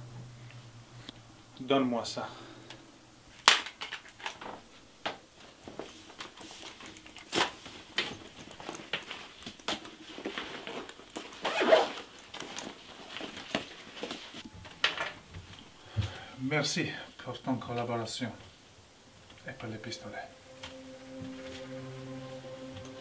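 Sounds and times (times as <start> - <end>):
zipper pulled: 11.1 - 12.8.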